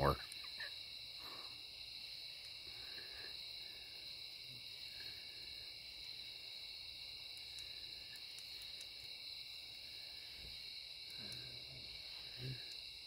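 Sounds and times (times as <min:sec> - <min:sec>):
night insects buzzing: 0:00.0 - 0:13.0.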